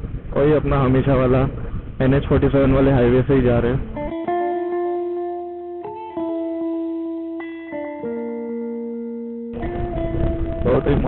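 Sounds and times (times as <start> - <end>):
guitar playing slow notes: 3.6 - 11.0.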